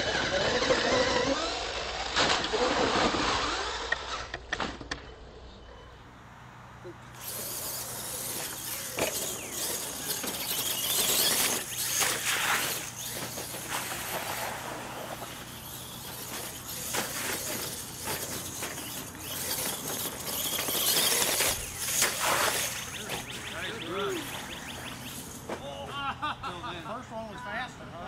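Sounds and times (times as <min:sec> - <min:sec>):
toy truck motor whirring: 0:00.0 - 0:04.6, 0:07.1 - 0:25.6
tyres throwing dirt and gravel: 0:07.2 - 0:25.8.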